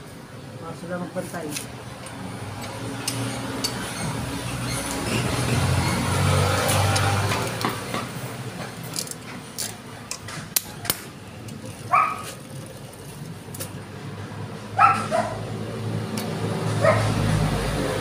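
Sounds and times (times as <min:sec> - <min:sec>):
motorcycle chain clicking: 0:01.6 - 0:06.0, 0:08.7 - 0:13.9
dog barking: 0:11.9 - 0:12.3, 0:14.8 - 0:15.5, 0:16.8 - 0:17.2.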